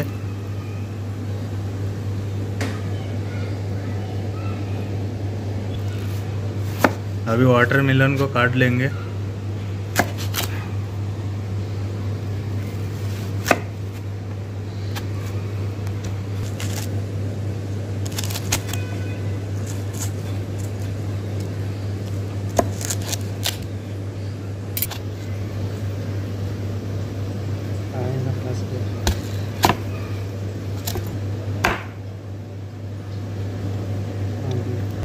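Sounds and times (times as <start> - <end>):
steady low hum: 0.0 - 35.0
knife cutting watermelon: 10.0 - 10.6, 22.5 - 23.7.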